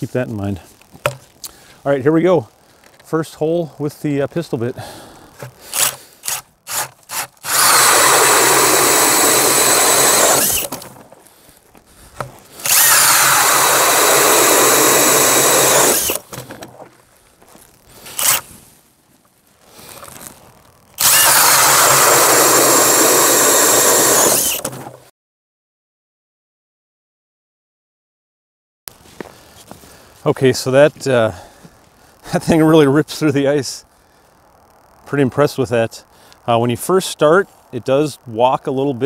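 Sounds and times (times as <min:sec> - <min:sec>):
drill powered ice auger cutting ice: 0:05.6 - 0:11.0, 0:12.6 - 0:16.3, 0:18.0 - 0:18.5, 0:21.0 - 0:25.0.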